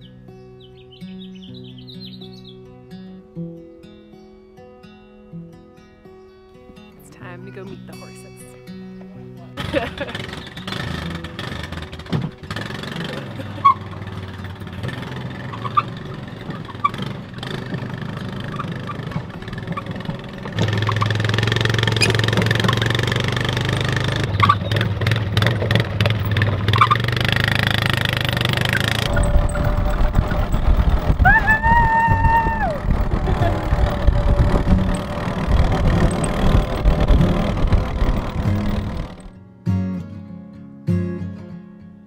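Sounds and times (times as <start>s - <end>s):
small vehicle engine running: 9.0s - 39.4s
rising and falling tone: 28.6s - 39.3s
wind buffeting microphone: 29.0s - 39.3s.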